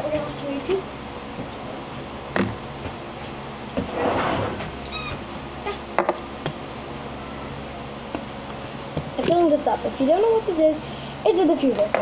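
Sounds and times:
high squeak: 4.8 - 5.3.

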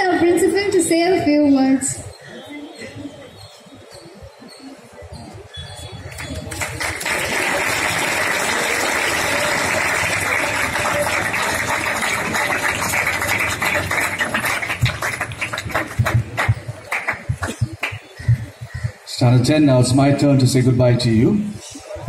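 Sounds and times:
audience applauding: 6.1 - 18.2.

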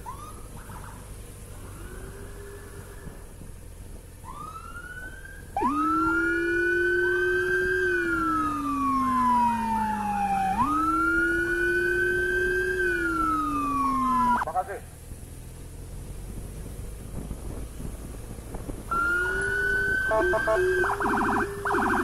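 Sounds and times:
loud siren wailing: 0.0 - 3.2, 4.2 - 14.5, 18.9 - 22.0
faint sirens rising and falling: 0.0 - 3.4, 4.1 - 14.5, 18.9 - 22.0.

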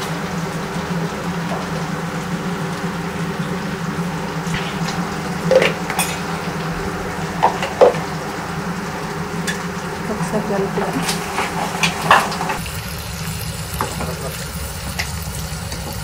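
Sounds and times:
steady hum: 0.0 - 13.3
meat frying in oil: 0.0 - 16.0
ladle clanking against pot: 4.6 - 6.5.

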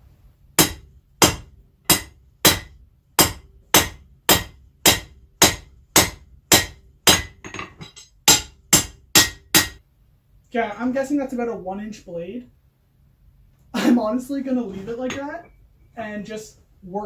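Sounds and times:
hammer striking metal on anvil: 0.6 - 9.8.

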